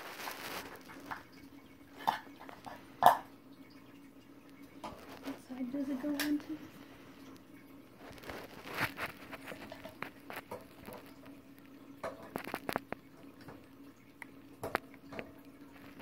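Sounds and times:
mouse scrabbling on plastic: 0.0s - 2.8s, 8.0s - 13.7s
faint steady hum: 0.0s - 16.0s.

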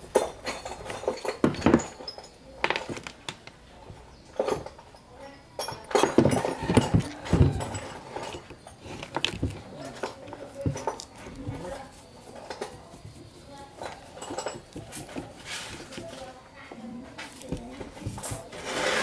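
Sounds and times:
metal clinks and knocks: 0.0s - 16.3s
screwdriver scraping metal: 18.1s - 19.0s.

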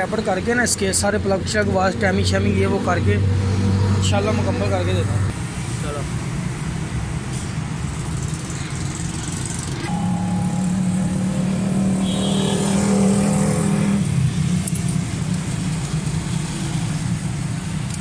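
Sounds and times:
vehicle engine running: 7.9s - 17.2s
pitched hum: 9.6s - 14.8s.

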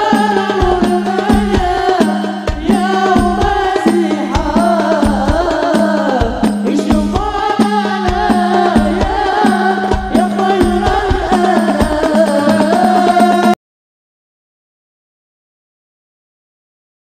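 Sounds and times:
person singing a devotional song: 0.0s - 13.6s.

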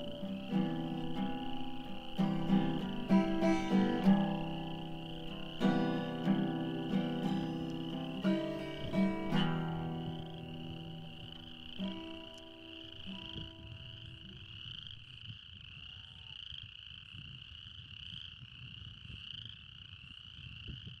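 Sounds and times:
acoustic guitar chord ringing: 0.0s - 14.5s
frogs calling in trills: 0.0s - 21.0s.

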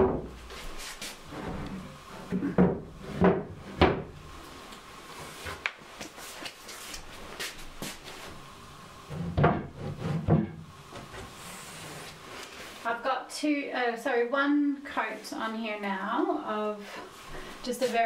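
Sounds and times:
wooden cabinet doors knocking: 0.0s - 0.4s, 2.3s - 4.2s, 9.3s - 10.6s.

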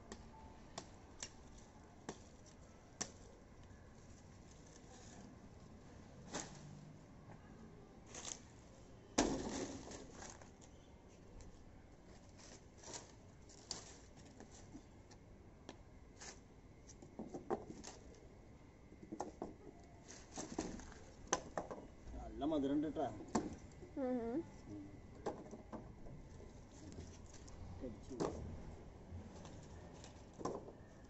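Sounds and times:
dry leaves rustling: 3.9s - 6.9s, 8.0s - 11.2s, 11.9s - 15.0s, 20.0s - 21.3s, 26.5s - 28.0s.

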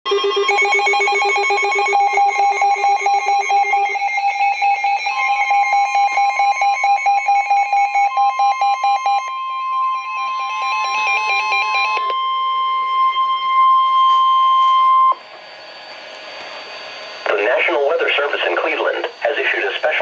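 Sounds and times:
steady warning alarm tone: 0.1s - 20.0s
weather radio alert beeps: 17.2s - 20.0s.

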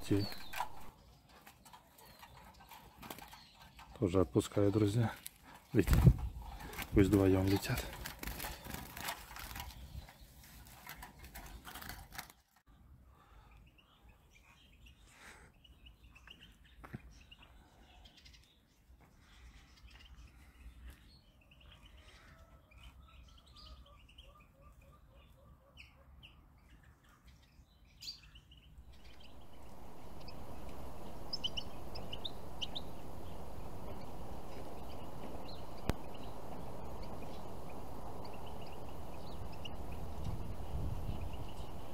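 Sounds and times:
steady hiss: 0.0s - 0.9s, 28.8s - 41.9s
songbirds chirping and trilling: 0.0s - 41.9s.

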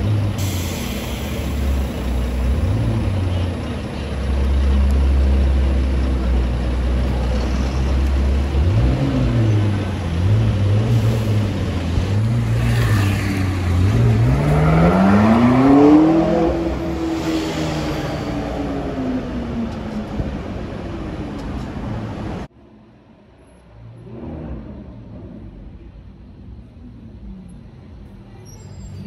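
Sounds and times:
sports car engine revving: 8.4s - 17.3s.

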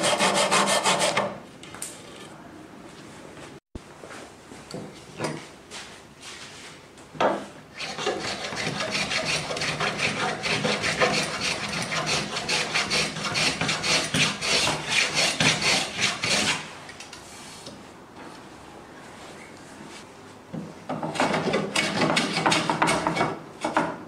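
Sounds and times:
hand plane scraping wood: 0.0s - 1.3s, 7.8s - 16.7s.

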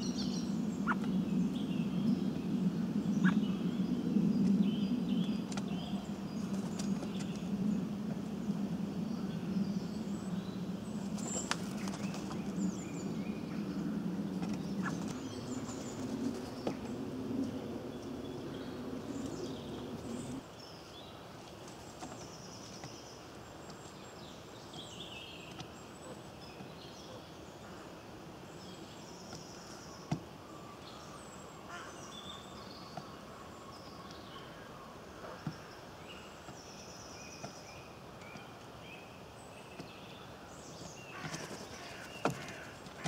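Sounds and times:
low hum: 0.0s - 20.4s
small birds chirping and singing: 0.0s - 43.0s.

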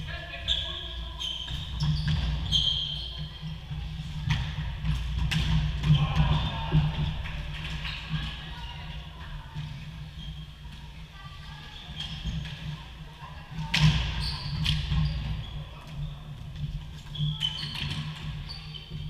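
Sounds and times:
shoes squeaking on floor: 0.0s - 4.0s, 11.4s - 12.8s, 13.8s - 19.0s.

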